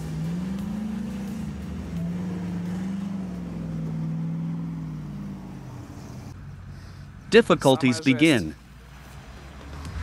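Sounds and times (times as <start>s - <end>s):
truck engine under load: 0.0s - 7.2s.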